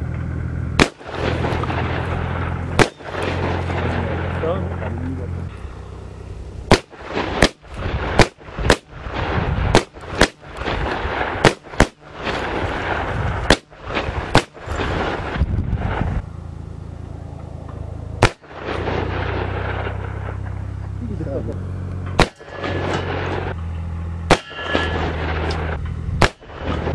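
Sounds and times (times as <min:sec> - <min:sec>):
gunshots: 0:00.8 - 0:04.3, 0:06.7 - 0:15.4, 0:18.2 - 0:20.5, 0:22.2 - 0:23.5, 0:24.3 - 0:26.9.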